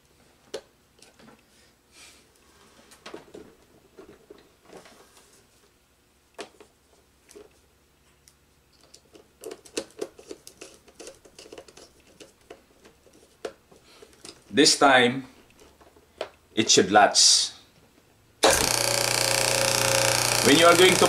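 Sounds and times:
screwdriver clicking on screws: 18.4s - 21.0s.

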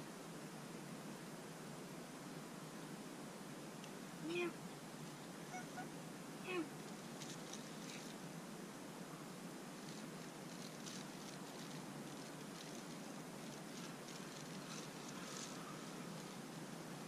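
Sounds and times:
low hiss and hum: 0.0s - 17.0s
faint short rustles: 6.8s - 8.2s, 9.7s - 17.0s.

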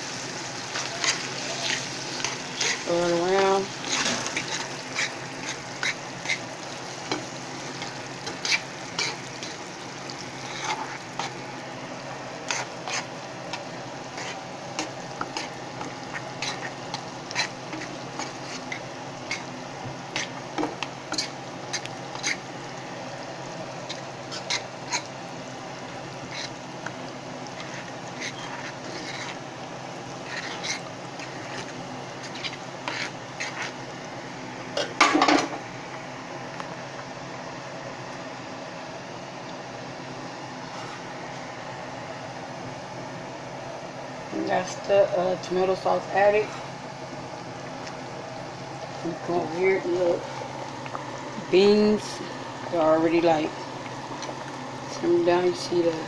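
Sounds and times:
low sizzle: 0.0s - 56.0s
utensil scraping and knocking on pan: 2.2s - 6.4s, 12.4s - 22.4s, 34.8s - 35.6s.

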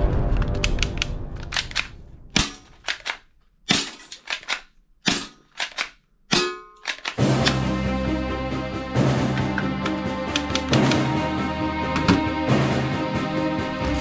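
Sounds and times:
toy pistol plastic clicks and snaps: 4.2s - 4.7s, 5.5s - 6.0s, 6.8s - 7.6s.

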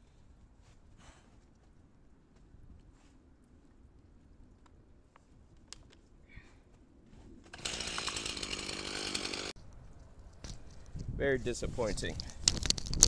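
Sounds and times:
chainsaw running: 7.5s - 9.6s.

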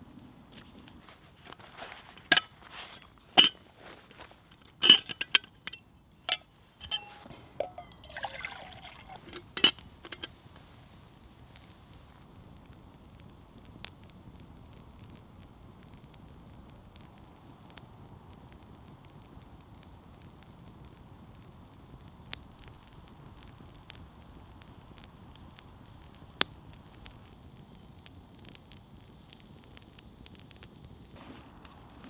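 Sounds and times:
low campfire sound: 0.0s - 32.0s
metal lid clinking: 3.2s - 3.6s, 4.7s - 10.3s
water pouring into can: 7.6s - 9.6s.

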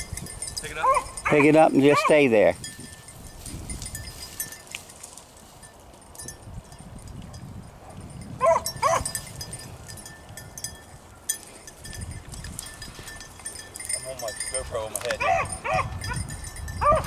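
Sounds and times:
dog barking: 0.8s - 2.1s, 7.8s - 9.0s, 15.2s - 15.9s.

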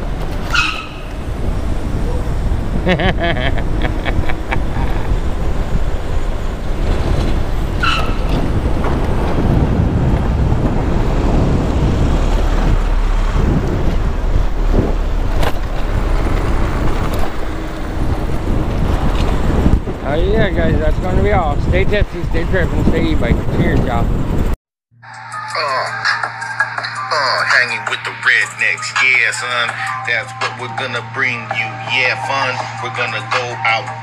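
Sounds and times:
road rumble: 0.0s - 24.6s, 25.4s - 34.0s
wind: 0.0s - 24.6s
car traffic: 0.0s - 34.0s
high squeal: 0.4s - 2.6s, 6.0s - 8.8s.

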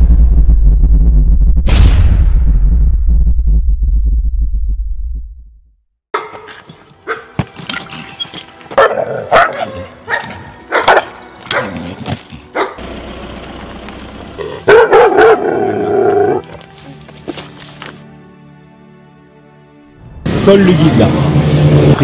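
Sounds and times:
dog barking: 6.2s - 7.4s, 8.8s - 11.8s, 12.5s - 12.8s, 14.6s - 15.7s.

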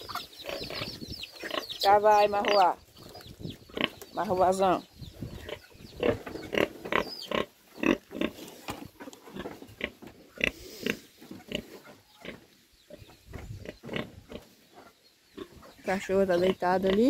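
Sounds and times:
pigs grunting and squealing: 5.4s - 8.4s.

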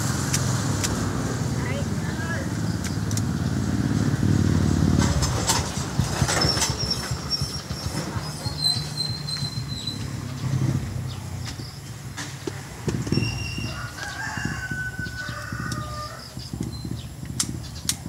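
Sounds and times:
vehicle engine running: 0.0s - 18.0s
high whistling tones: 13.0s - 13.8s.

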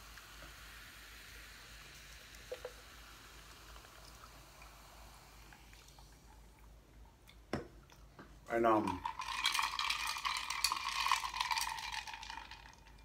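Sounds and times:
sparkling water fizzing over ice: 8.8s - 13.0s.

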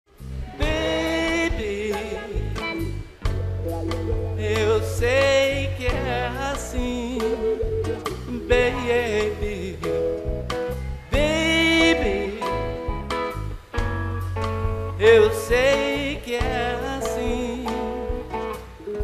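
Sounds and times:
bass: 0.1s - 19.0s
drums: 0.1s - 19.0s
amplified acoustic guitar: 0.2s - 19.0s
man singing: 0.5s - 3.1s, 4.2s - 10.2s, 11.1s - 13.1s, 14.9s - 19.0s.

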